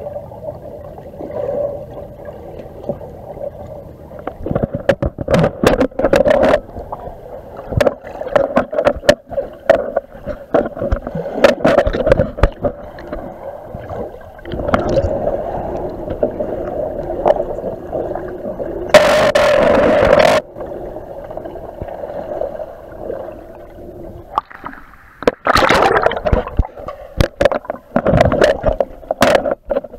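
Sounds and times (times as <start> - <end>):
underwater water sloshing and gurgling: 0.0 - 29.9
sharp knocks and clicks: 4.5 - 6.6.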